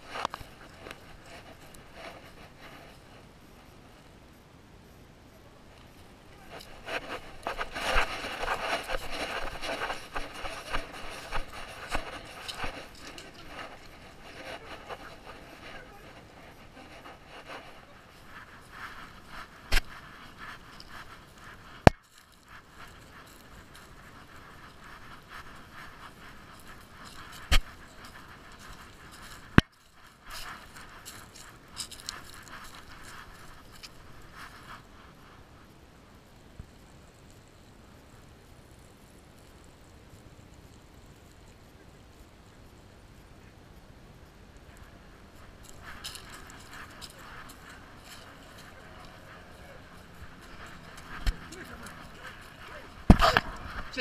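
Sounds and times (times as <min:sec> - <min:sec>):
fur and harness rubbing camera: 0:00.0 - 0:03.7, 0:05.8 - 0:35.4, 0:44.8 - 0:54.0
rustling in dry grass and leaves: 0:00.0 - 0:54.0.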